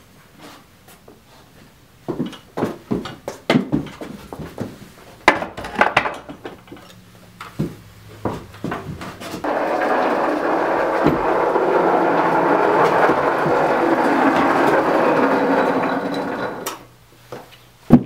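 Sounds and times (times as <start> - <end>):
miniature train rolling on rails: 9.4 - 16.9.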